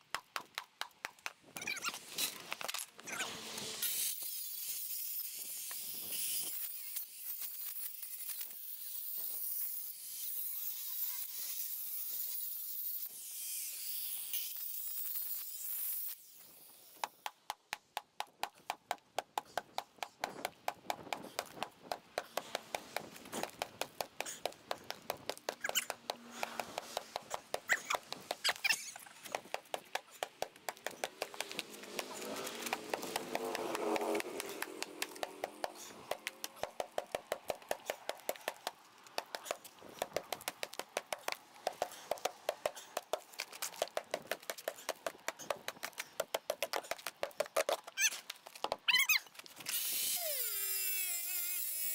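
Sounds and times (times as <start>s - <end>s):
hammer chipping concrete fill: 17.0s - 47.8s.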